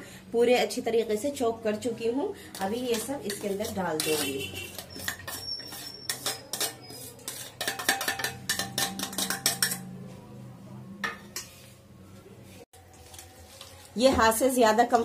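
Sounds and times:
steel bowls clinking and scraping: 0:02.5 - 0:10.2.

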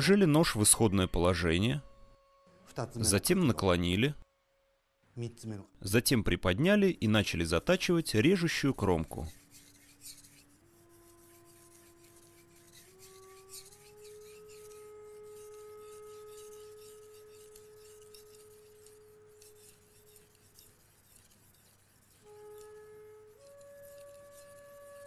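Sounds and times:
knife scraping on whetstone: 0:08.2 - 0:25.0
soft flute music: 0:10.4 - 0:20.4, 0:22.1 - 0:25.0.

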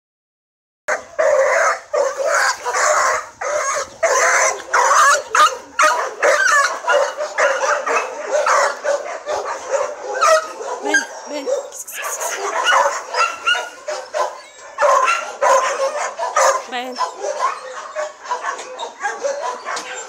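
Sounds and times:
dog barking: 0:00.9 - 0:20.0.

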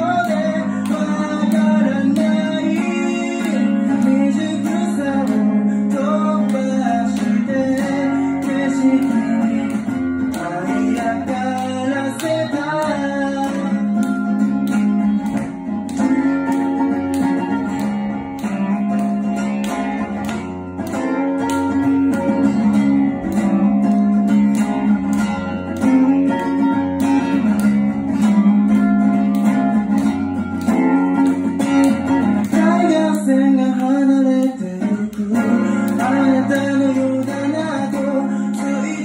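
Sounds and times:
man singing: 0:00.0 - 0:14.7, 0:32.4 - 0:39.0
acoustic guitar strumming: 0:00.0 - 0:39.0.

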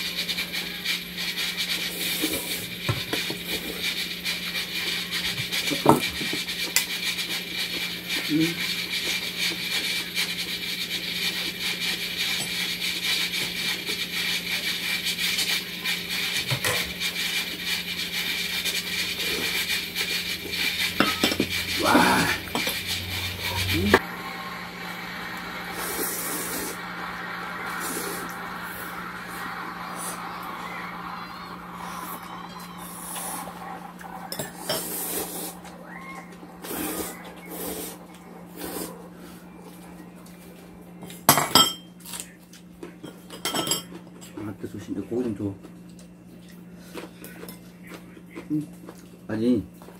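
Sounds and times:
noodles being slurped: 0:00.0 - 0:24.2, 0:33.0 - 0:35.8, 0:36.6 - 0:39.2
steady hiss and hum: 0:00.0 - 0:42.6
utensils tapping bowls: 0:20.6 - 0:24.0.

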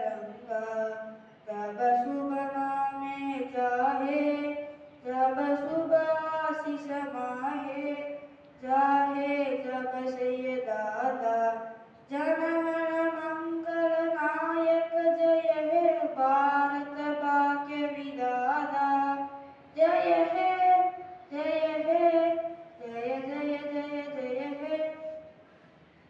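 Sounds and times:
child singing: 0:12.1 - 0:25.2.

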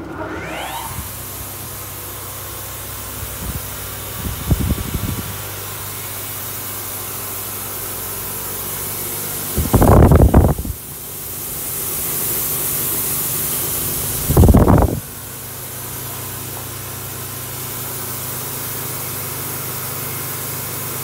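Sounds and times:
polishing machine motor hum: 0:00.0 - 0:14.4.

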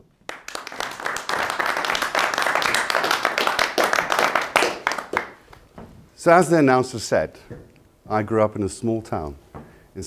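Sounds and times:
audience applauding: 0:00.2 - 0:05.5.

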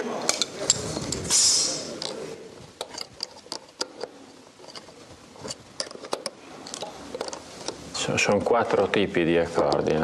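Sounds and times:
small parts clicking on wood: 0:02.8 - 0:07.8.

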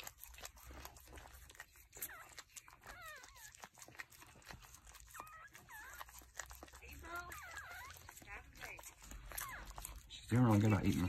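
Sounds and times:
dog licking wet clicks: 0:00.0 - 0:11.0
puppies squeaking: 0:00.0 - 0:11.0.

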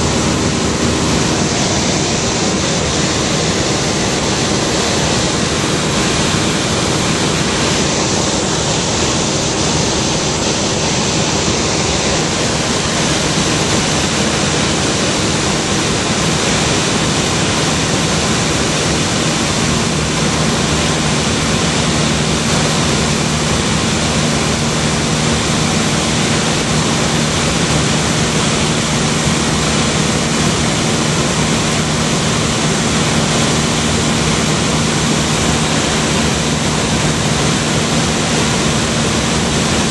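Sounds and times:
aircraft cabin engine noise: 0:00.0 - 0:39.9
low steady hum: 0:00.0 - 0:39.9.

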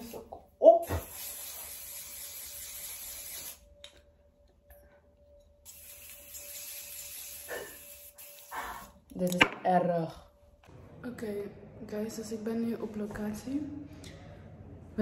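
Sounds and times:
aerosol can spraying: 0:00.8 - 0:03.6, 0:05.7 - 0:09.0.

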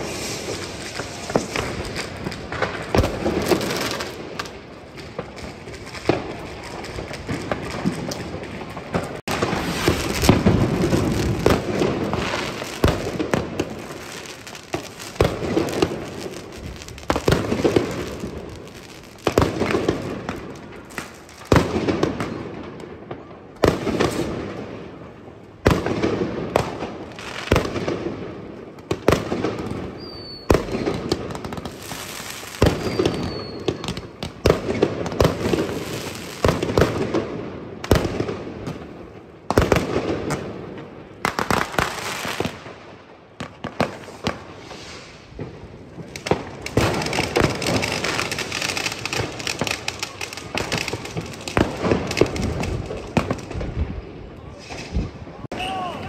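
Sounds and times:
distant fireworks bangs: 0:00.0 - 0:24.9, 0:25.6 - 0:42.8
fireworks bangs with crackle: 0:00.0 - 0:56.0.

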